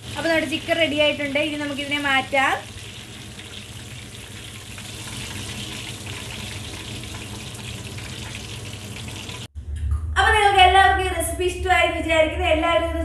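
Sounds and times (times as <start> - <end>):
chicken frying in hot oil: 0.0 - 9.5.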